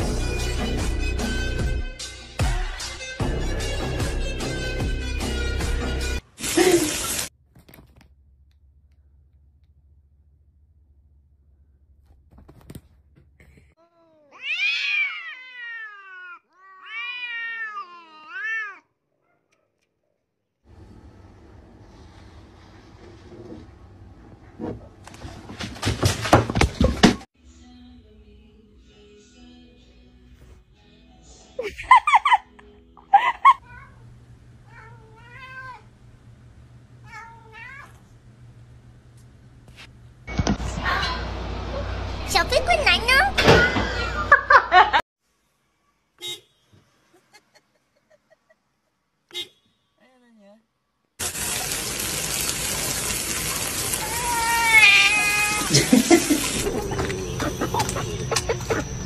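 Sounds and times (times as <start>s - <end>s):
cats yowling: 14.3s - 18.9s, 53.8s - 55.8s, 56.6s - 59.0s.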